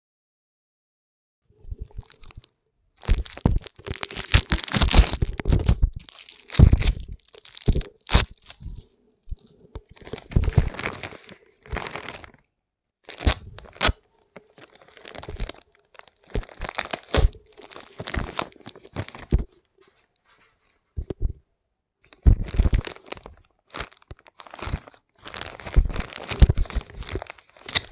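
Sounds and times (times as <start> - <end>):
plastic mailer bag crinkling: 1.7 - 12.4, 13.1 - 19.5, 22.1 - 27.9
plastic tape pulled away: 3.1 - 8.6.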